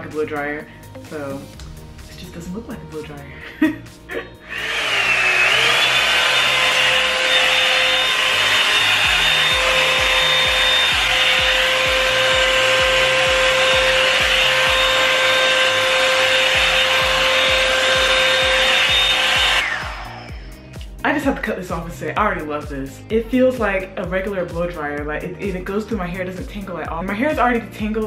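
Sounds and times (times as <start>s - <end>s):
hair dryer brush whine: 3.5s - 20.9s.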